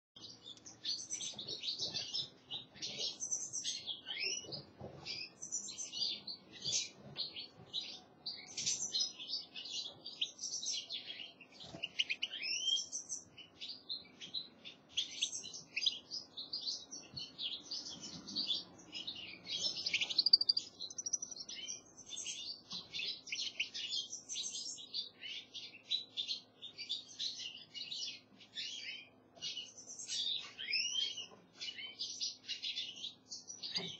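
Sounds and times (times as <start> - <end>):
goldfinches twittering and chirping: 0.2 - 33.9.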